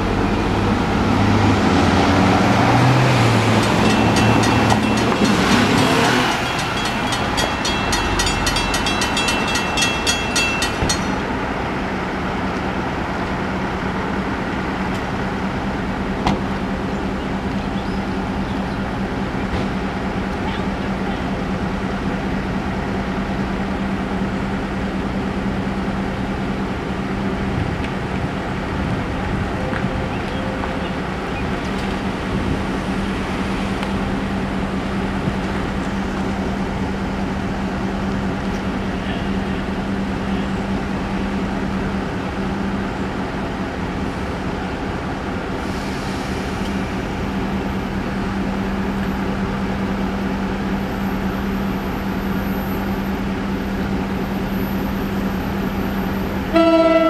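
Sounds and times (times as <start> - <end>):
crossing warning bells ringing: 3.1 - 11.6.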